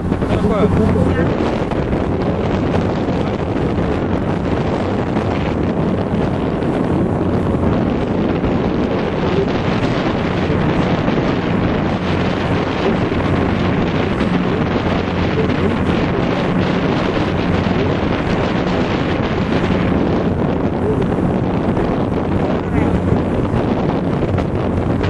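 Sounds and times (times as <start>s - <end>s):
boat engine drone: 0.0s - 25.0s
water wash: 0.0s - 25.0s
wind buffeting microphone: 0.0s - 25.0s.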